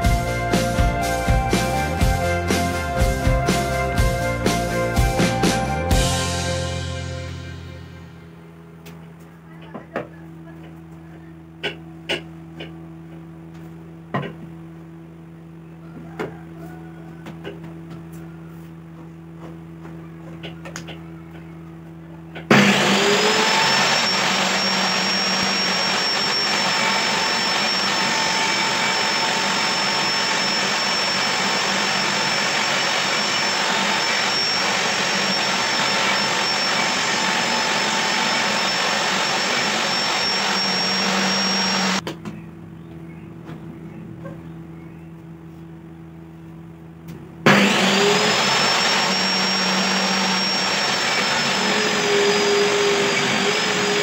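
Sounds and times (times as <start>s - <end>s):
low hum: 0.0s - 54.0s
table saw ripping wood: 22.4s - 42.0s, 47.5s - 54.0s.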